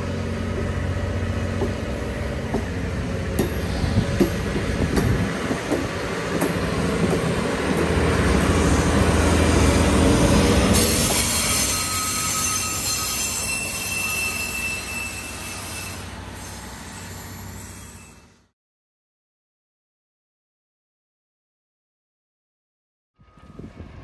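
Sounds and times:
train wheels and machinery rumbling: 0.0 - 18.5, 23.2 - 24.0
high wheel squeals: 10.7 - 18.5.

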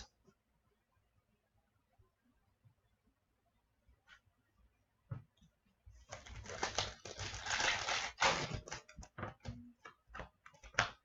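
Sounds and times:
foil pack crinkling and tearing: 6.1 - 8.9.

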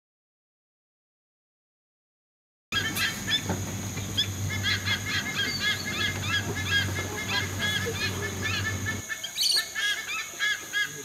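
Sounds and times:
birds chirping: 2.7 - 11.0
low steady hum: 2.8 - 9.4.

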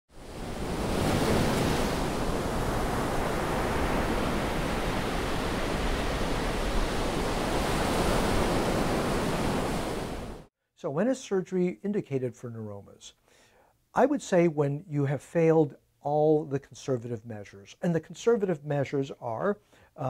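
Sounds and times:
ocean surf breaking: 0.1 - 10.5.

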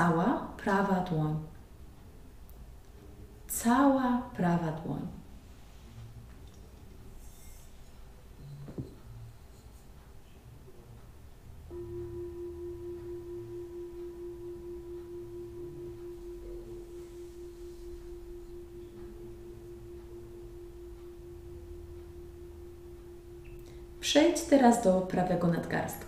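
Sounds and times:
singing bowl ringing: 11.7 - 25.5.

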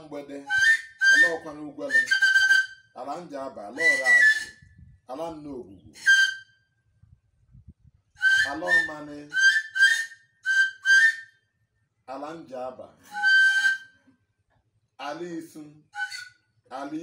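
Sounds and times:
man chanting: 0.0 - 2.1, 3.0 - 4.3, 8.4 - 9.4, 16.7 - 17.0
high-pitched whistle notes: 0.5 - 2.8, 3.8 - 4.7, 6.0 - 6.6, 8.2 - 11.4, 13.1 - 14.0.

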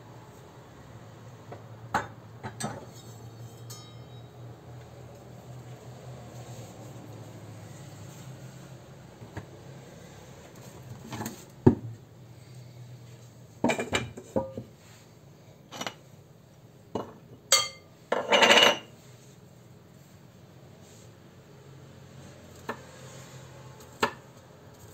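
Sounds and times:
utensils and dishes clinking: 2.0 - 4.4, 17.0 - 18.9
clattering scrape: 2.6 - 4.3.

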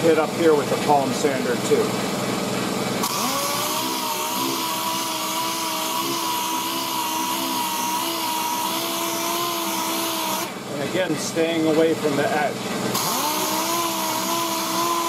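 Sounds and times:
air sander whine: 2.1 - 11.4, 12.6 - 15.0.

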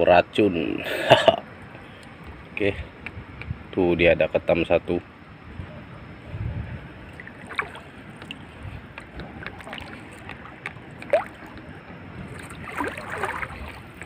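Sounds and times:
water sloshing around wading feet: 7.1 - 14.0.

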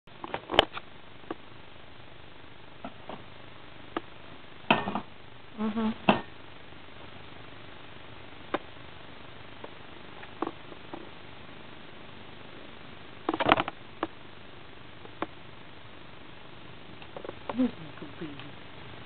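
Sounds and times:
low voiced sound: 5.5 - 6.1.

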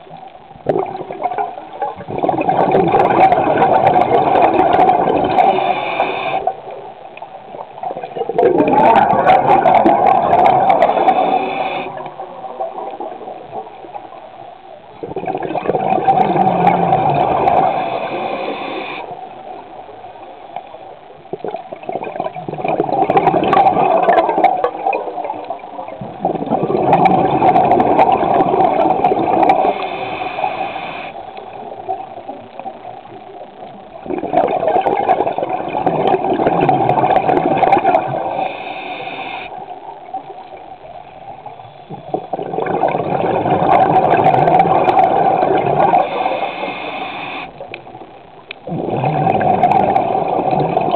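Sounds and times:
underwater regulator breathing bubbles: 2.0 - 6.6, 8.2 - 12.2, 15.1 - 19.2, 26.2 - 31.4, 34.1 - 39.7, 41.8 - 47.8, 48.7 - 50.9.

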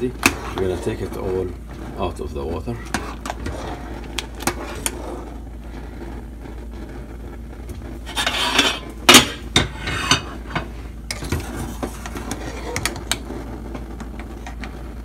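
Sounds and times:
water boiling in pot: 0.0 - 15.0
metal spoon scraping lid: 8.1 - 13.1
metal cookware clattering: 8.1 - 13.2.

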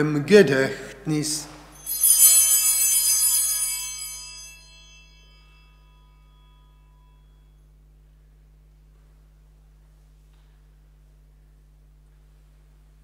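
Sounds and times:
altar bells ringing: 1.4 - 7.8.

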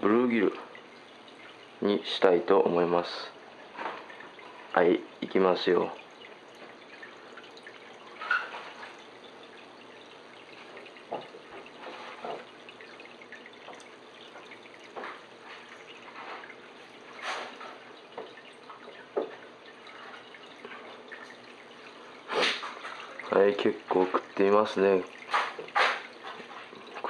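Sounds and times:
aquarium water trickling: 0.0 - 27.0
sharp knocks or splashes: 22.2 - 23.3, 25.2 - 27.0.

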